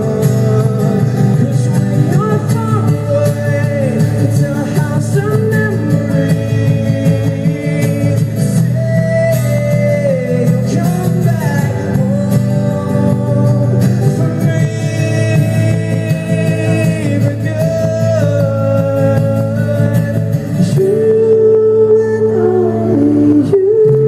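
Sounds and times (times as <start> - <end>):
acoustic guitar strumming: 0.0 - 24.0.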